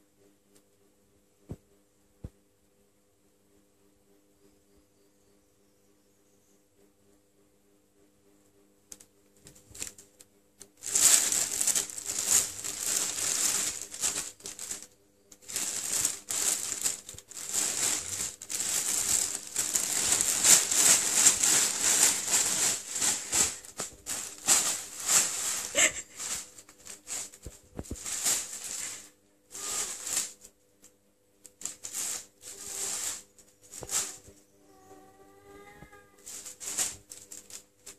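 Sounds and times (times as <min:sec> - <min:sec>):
plastic bag rustling: 0:09.6 - 0:10.0, 0:10.8 - 0:30.6, 0:31.5 - 0:34.3, 0:36.2 - 0:37.9
cats scrambling: 0:10.8 - 0:30.5, 0:36.2 - 0:37.9.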